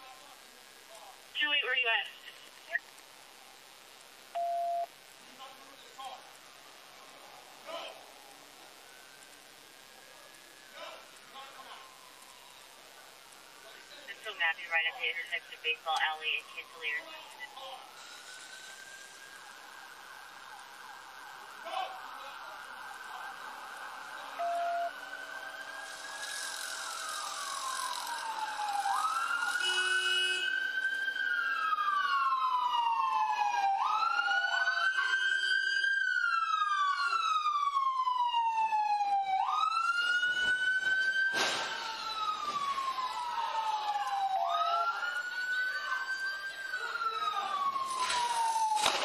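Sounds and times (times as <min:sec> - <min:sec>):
police siren wailing: 0:06.9 - 0:13.8, 0:14.5 - 0:49.0
sharp bang: 0:41.3 - 0:41.9.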